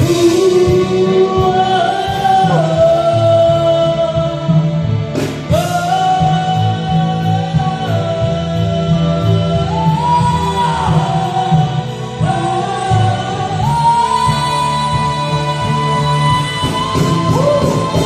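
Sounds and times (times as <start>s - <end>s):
bass: 0.0s - 18.0s
drums: 0.0s - 18.0s
electric guitar: 0.0s - 18.0s
person singing long notes: 0.0s - 18.0s.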